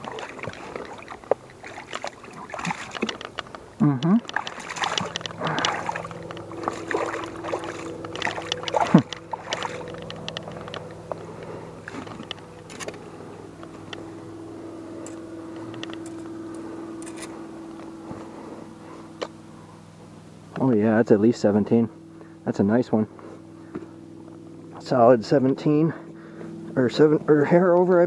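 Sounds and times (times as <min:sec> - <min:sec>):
water splashing: 0:00.0 - 0:10.7
steady low hum: 0:00.0 - 0:28.0.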